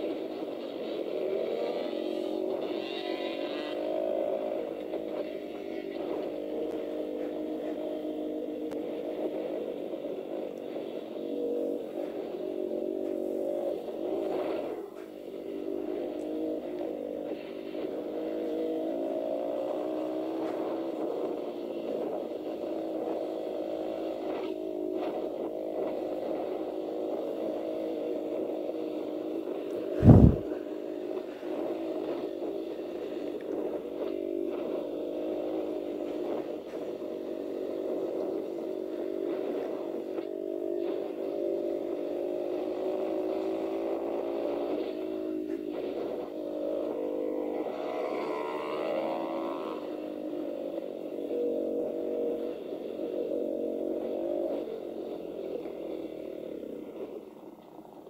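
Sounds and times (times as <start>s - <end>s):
dirt bike engine revving: 0.0s - 57.4s
loud thump: 30.0s - 30.4s.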